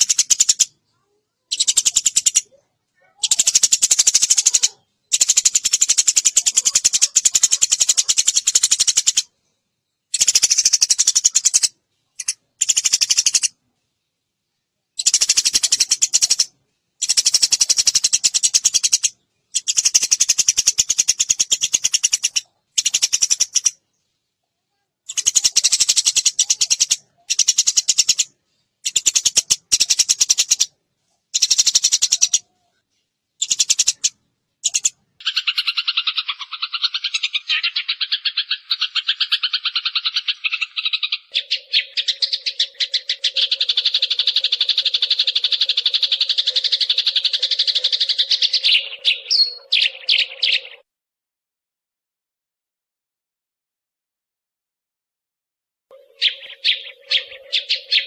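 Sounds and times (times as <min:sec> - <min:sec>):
sparrow chirping: 0:00.0 - 0:09.3, 0:10.1 - 0:13.6, 0:15.0 - 0:24.2, 0:25.1 - 0:30.7, 0:31.3 - 0:50.8, 0:55.9 - 0:58.0.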